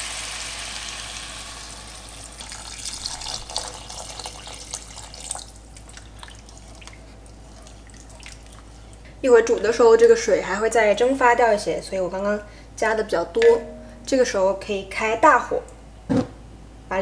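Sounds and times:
water pouring into pot: 0.0 - 9.0.

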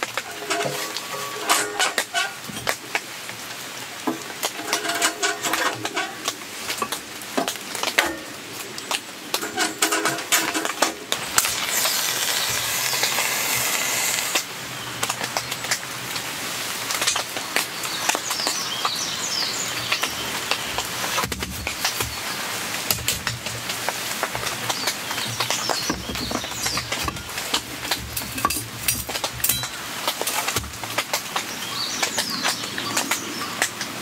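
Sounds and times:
flame lighting with a hiss: 10.4 - 14.6.

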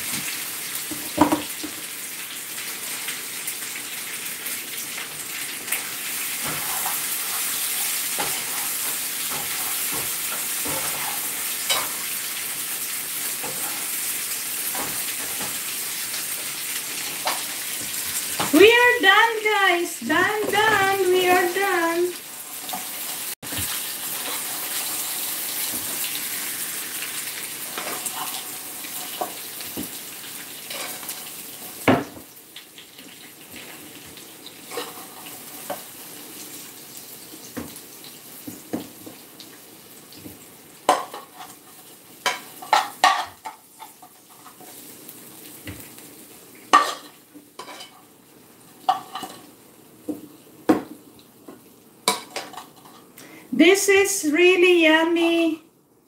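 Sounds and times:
meat sizzling in a frying pan: 0.0 - 53.5
tongs and spoon clinking on pan: 8.2 - 12.0, 42.2 - 44.6, 46.7 - 48.1, 48.8 - 49.5, 52.1 - 53.1.

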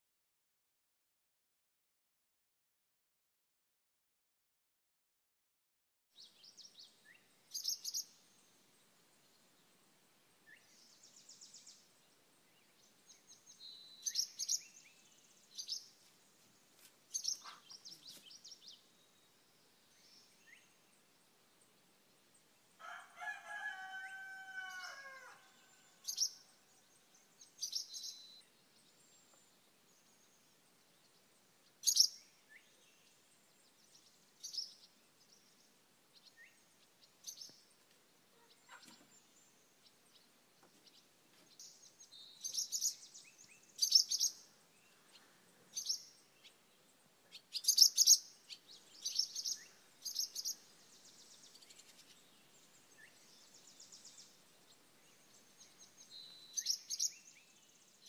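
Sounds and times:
songbirds chirping: 6.2 - 58.0
rooster crowing: 22.8 - 26.1.

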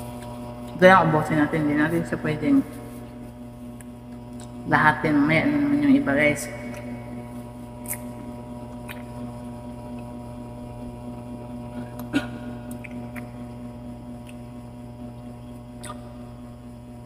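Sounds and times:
electrical hum: 0.0 - 17.0
person chewing juicy fruit: 7.8 - 10.2, 14.2 - 14.5, 15.2 - 16.2.

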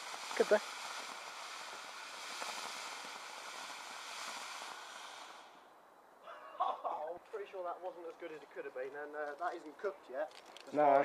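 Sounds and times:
fountain firework hissing: 0.0 - 5.8.

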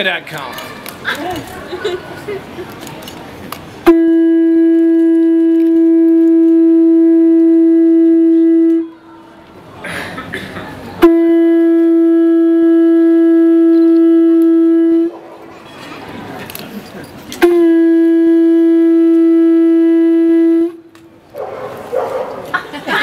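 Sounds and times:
horn blasts: 3.8 - 9.1, 11.0 - 15.2, 17.4 - 20.9.

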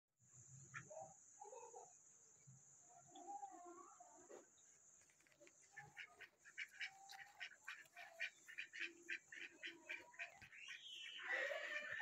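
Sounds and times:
birds chirping: 4.5 - 12.0
harsh bird call: 9.6 - 12.0.

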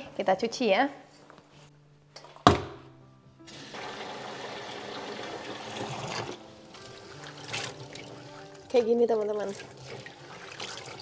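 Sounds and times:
tap water running: 3.5 - 11.0.

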